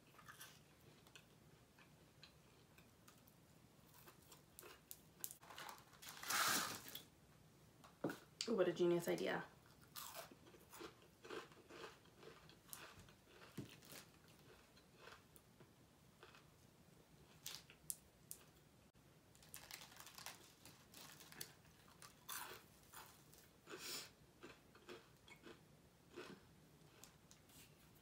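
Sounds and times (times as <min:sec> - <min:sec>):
chewing and crunching food: 0:00.0 - 0:05.6, 0:09.6 - 0:18.6, 0:19.4 - 0:28.0
paper wrapper crinkling: 0:05.4 - 0:07.0, 0:19.3 - 0:22.2.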